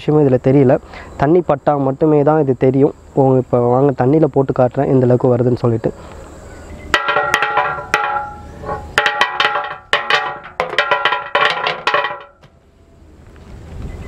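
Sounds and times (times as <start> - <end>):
tablets clattering on concrete: 7.0 - 12.4.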